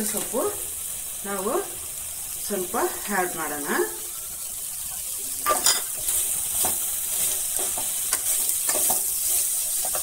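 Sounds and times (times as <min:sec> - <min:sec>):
frying sizzle: 0:00.0 - 0:10.0
spoon scraping a pan: 0:05.4 - 0:10.0.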